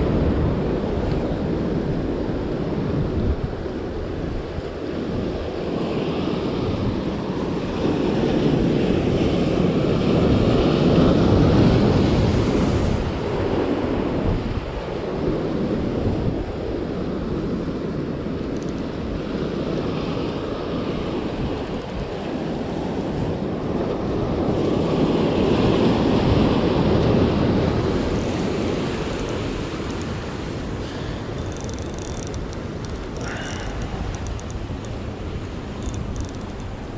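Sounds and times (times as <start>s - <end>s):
wind on microphone: 0.0s - 36.9s.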